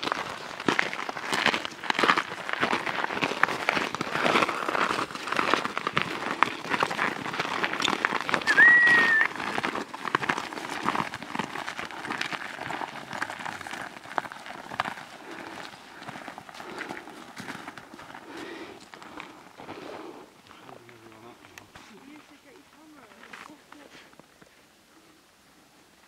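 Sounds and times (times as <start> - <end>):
boots crunching in snow: 0.0 - 20.1
short high-pitched whistle tone: 8.5 - 9.3.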